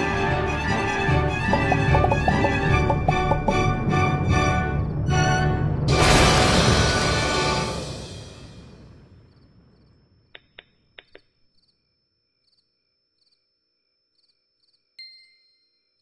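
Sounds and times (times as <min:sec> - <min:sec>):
music: 0:00.0 - 0:08.8
crickets chirping: 0:09.3 - 0:10.4, 0:11.5 - 0:15.0.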